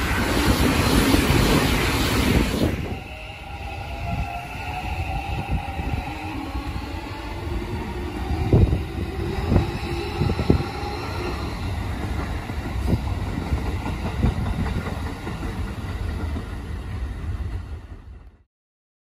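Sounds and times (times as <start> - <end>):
train rumble: 0.0 - 18.4
train wheels clacking: 8.4 - 18.4.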